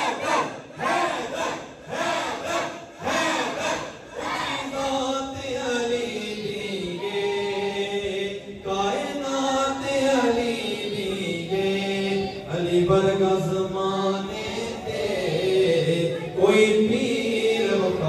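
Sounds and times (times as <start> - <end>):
person chanting devotional song: 0.0 - 18.0.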